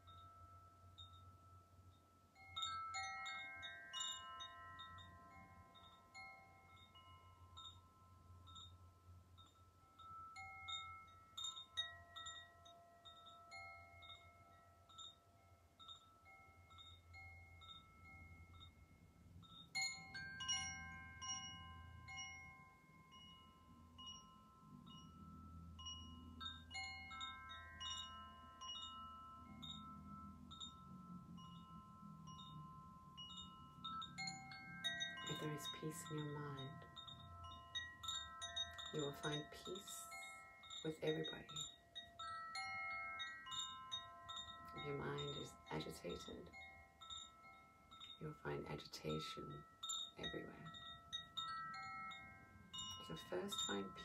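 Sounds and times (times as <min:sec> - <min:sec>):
faint low hum: 0:00.0 - 0:42.2
hand-struck chimes ringing: 0:00.0 - 0:48.2.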